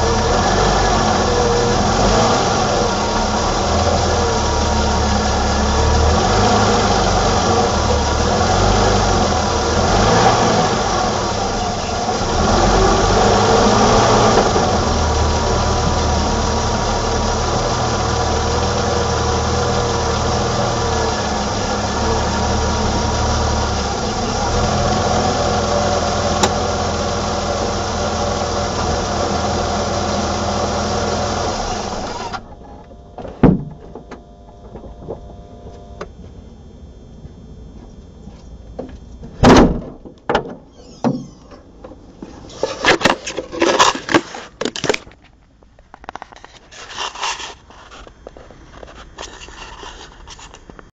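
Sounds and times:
car engine running: 0:00.0 - 0:39.5
loud thump: 0:33.2 - 0:34.0, 0:39.4 - 0:41.6
knocks and scraping handling noises: 0:40.0 - 0:50.9.

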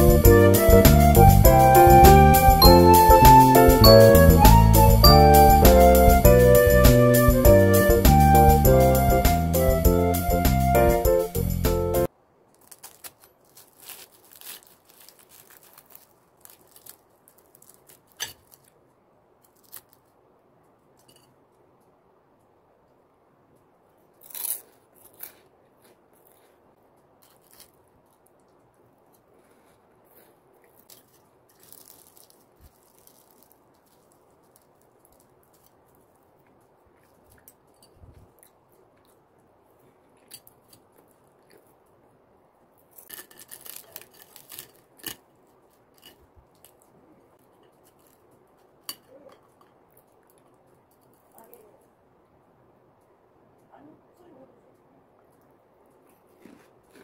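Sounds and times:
pastry crackling and crunching: 0:12.4 - 0:21.1, 0:23.5 - 0:52.1, 0:54.8 - 0:57.0.

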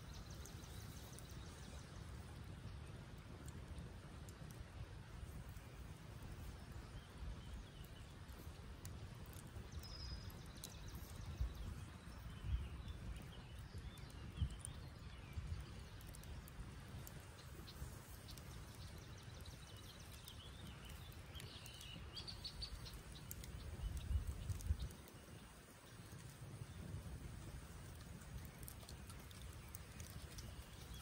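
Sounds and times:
campfire crackling and popping: 0:00.0 - 0:31.0
birds chirping: 0:17.0 - 0:31.0.

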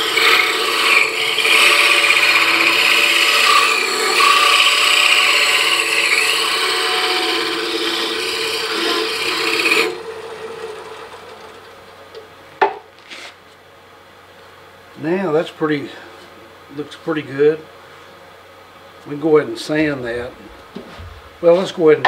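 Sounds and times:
hole saw scraping wood: 0:00.0 - 0:11.8
lathe running quietly: 0:00.0 - 0:13.2, 0:19.0 - 0:22.0.

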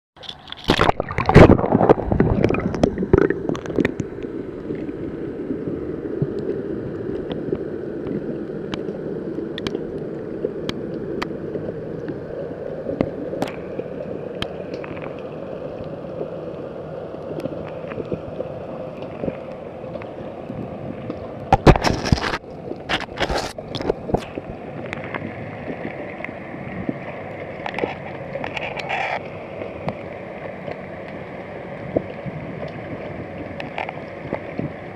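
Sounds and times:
splashing: 0:00.2 - 0:04.0
water rushing and gurgling: 0:00.2 - 0:34.9.

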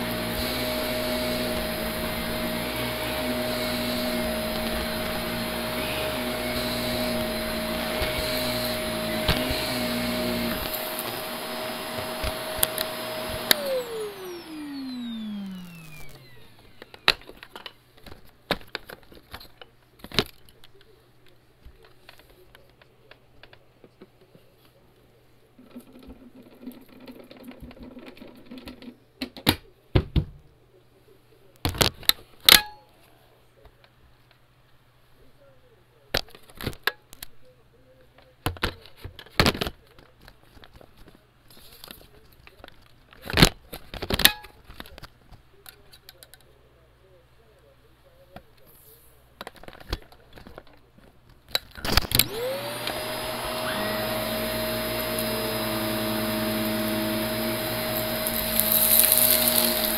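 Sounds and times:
vacuum cleaner hum: 0:00.0 - 0:17.4, 0:52.2 - 0:59.9
vacuum crunching debris: 0:52.2 - 0:59.9.

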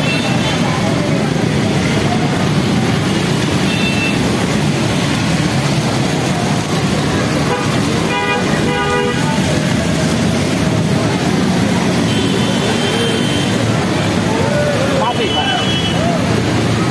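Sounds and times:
motorcycle and car engines: 0:00.0 - 0:16.9
vehicle horn: 0:07.4 - 0:09.4.

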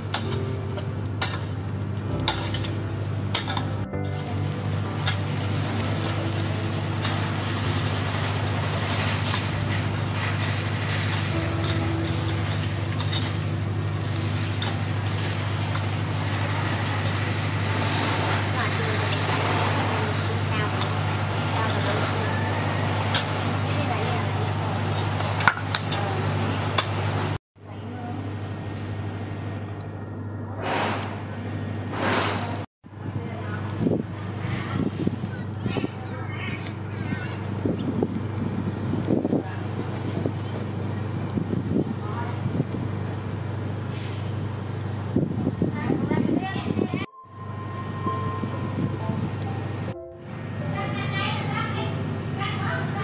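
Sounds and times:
charcoal embers hissing and crackling: 0:00.0 - 0:27.4, 0:30.5 - 0:47.0
low mechanical hum: 0:00.0 - 0:53.0.

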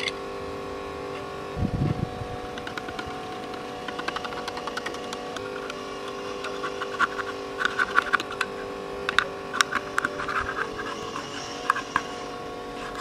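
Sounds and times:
compressor motor whirring hum: 0:00.0 - 0:13.0
spatula scraping metal tray: 0:04.9 - 0:13.0.

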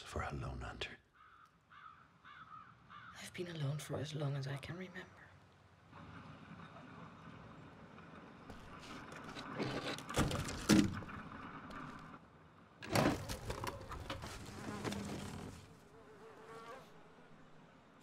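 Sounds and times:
knocks and clatter: 0:08.5 - 0:12.0.

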